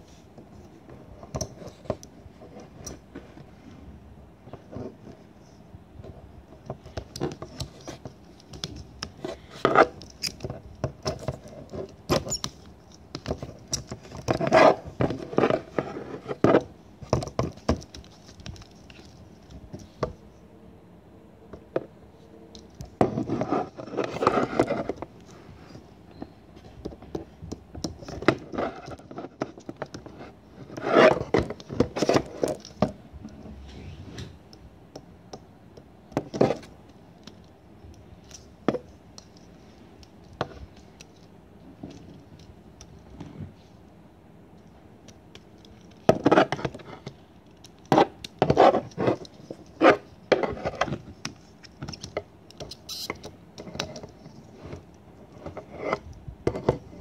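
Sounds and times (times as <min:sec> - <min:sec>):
plastic puzzle clicking and scraping: 0:26.8 - 0:33.0, 0:45.3 - 0:57.0.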